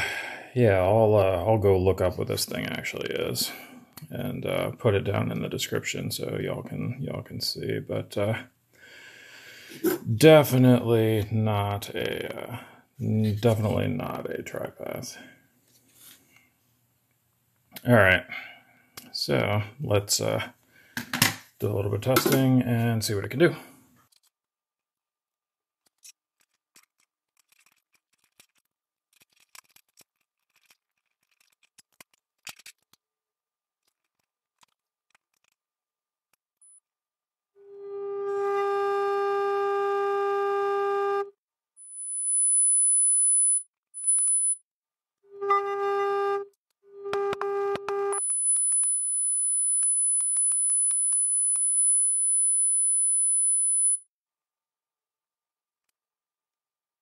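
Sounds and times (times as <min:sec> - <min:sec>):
high-pitched test tone: 0:41.8 - 0:44.6, 0:46.9 - 0:54.0
scattered clicks: 0:47.8 - 0:51.9.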